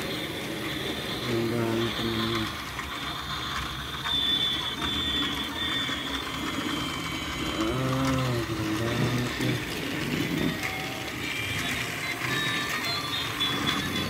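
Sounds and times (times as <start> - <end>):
toy train motor whirring: 0.0 - 14.0
low voice-like hum: 7.4 - 9.8.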